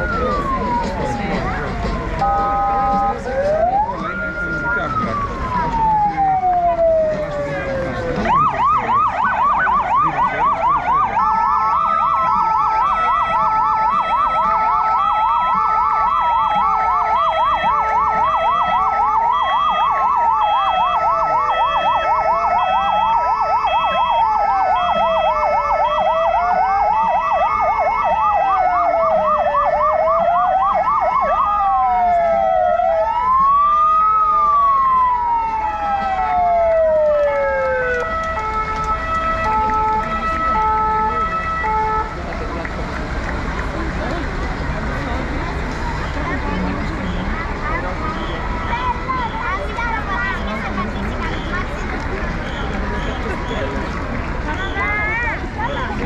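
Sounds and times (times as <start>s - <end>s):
siren pulsing tone: 0.0s - 42.1s
siren rising and falling wail: 0.0s - 42.2s
siren steady tone: 0.0s - 42.2s
siren fast warbling yelp: 8.3s - 42.0s.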